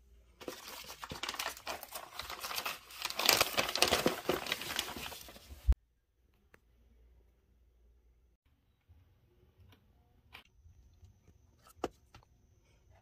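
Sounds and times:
plastic envelope crinkling: 0:00.4 - 0:05.8.

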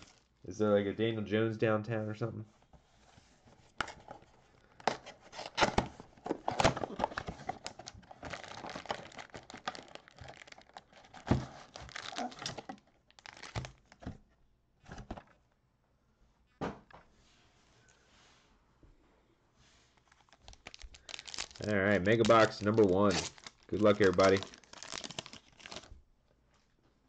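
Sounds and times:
foil packs rustling: 0:06.4 - 0:14.0, 0:20.0 - 0:25.9
cardboard and wrapping tearing: 0:06.5 - 0:13.9, 0:20.0 - 0:25.9.

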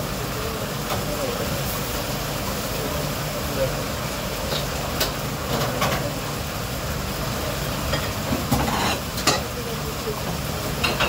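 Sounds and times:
kitchen hum: 0:00.0 - 0:11.0
dishes and utensils clattering: 0:07.9 - 0:09.5, 0:10.8 - 0:11.0.

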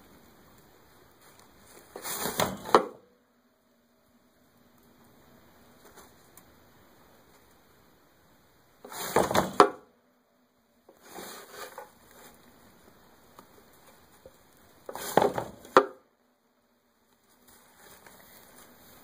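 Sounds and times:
rustling and scraping: 0:01.1 - 0:03.0, 0:05.7 - 0:06.5, 0:08.8 - 0:09.8, 0:10.9 - 0:16.0, 0:17.1 - 0:19.0.

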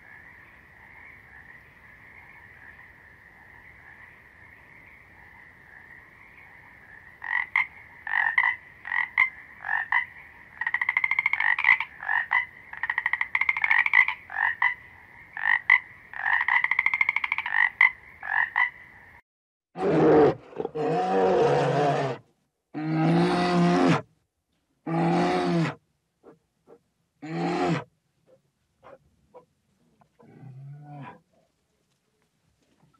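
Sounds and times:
frogs croaking and trilling: 0:00.0 - 0:19.2
high-pitched frog chorus: 0:00.0 - 0:19.2.

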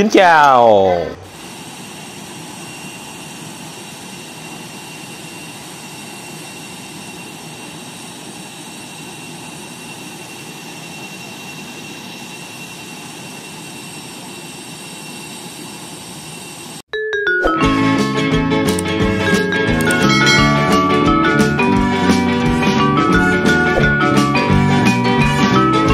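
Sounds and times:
jet whine and rushing: 0:01.2 - 0:16.8.

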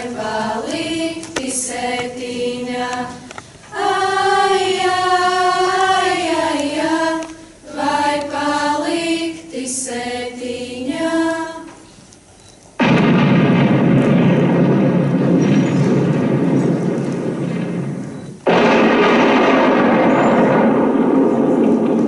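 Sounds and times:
choir singing in unison: 0:00.0 - 0:11.9
artillery fire rumbling: 0:12.8 - 0:22.0.

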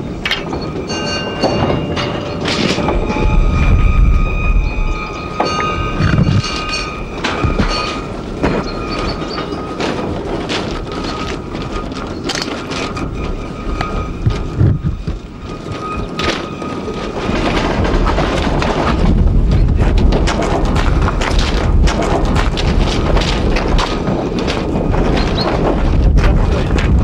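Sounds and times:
wagon couplings clanking: 0:00.0 - 0:03.5, 0:04.6 - 0:27.0
train wagons rumbling: 0:00.0 - 0:27.0
high brake squeal: 0:00.5 - 0:09.8.

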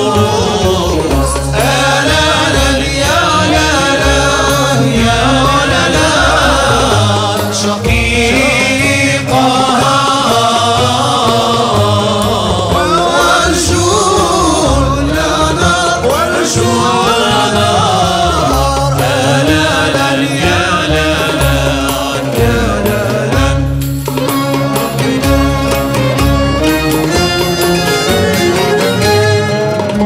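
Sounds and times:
low drum beat: 0:00.0 - 0:30.0
orchestra instruments playing: 0:00.0 - 0:30.0
voices singing together: 0:00.0 - 0:30.0.

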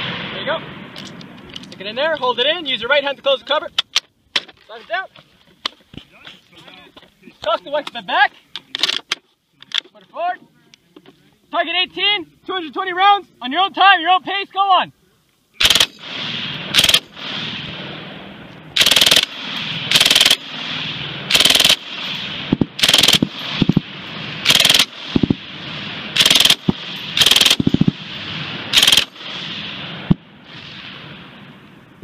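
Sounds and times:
machine gun bursts: 0:15.6 - 0:16.0, 0:16.7 - 0:17.1, 0:18.8 - 0:20.4, 0:21.3 - 0:21.9, 0:22.8 - 0:23.8, 0:24.4 - 0:25.4, 0:26.2 - 0:27.9, 0:28.7 - 0:29.2
rolling echo of gunfire: 0:15.6 - 0:31.6.

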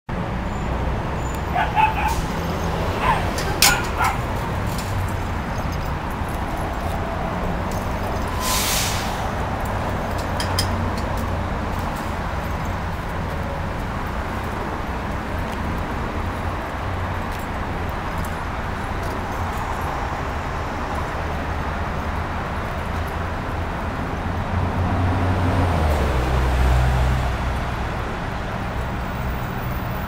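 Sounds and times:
city traffic rumble: 0:00.1 - 0:30.0
short hiss: 0:08.3 - 0:09.2.

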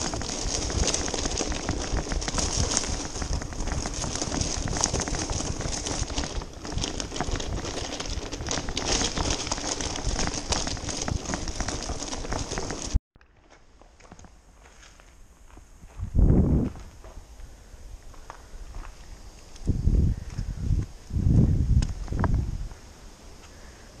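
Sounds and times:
bike rattling: 0:00.0 - 0:13.0
bicycle tyres crunching on gravel: 0:00.0 - 0:24.0.

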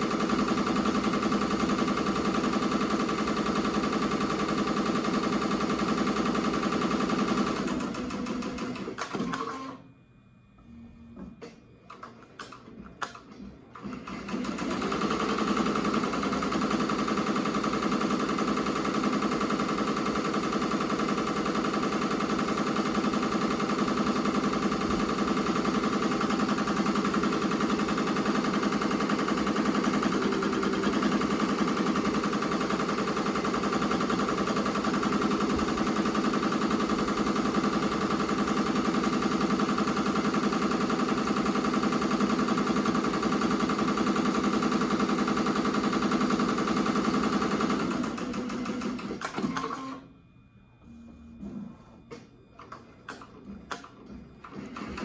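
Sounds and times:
embroidery machine stitching: 0:00.0 - 0:09.8, 0:11.4 - 0:50.0, 0:52.1 - 0:55.0
machine clicks: 0:11.4 - 0:50.0, 0:52.1 - 0:55.0.

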